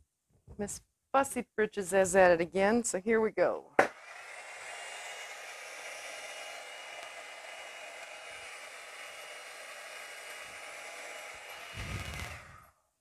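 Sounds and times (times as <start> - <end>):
hair dryer blowing: 3.8 - 12.8.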